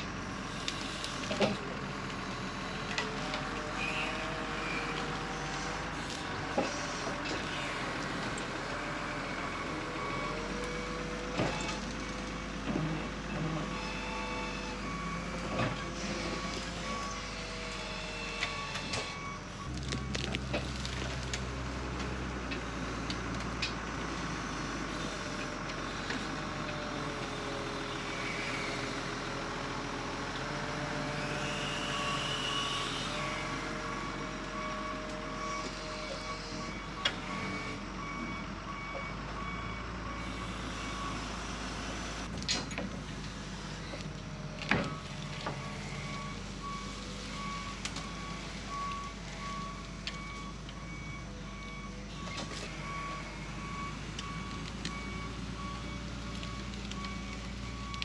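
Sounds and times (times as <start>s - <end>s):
diesel engine under load: 0.0s - 58.0s
reversing alarm beeping: 13.6s - 20.4s, 31.4s - 42.1s, 44.6s - 58.0s.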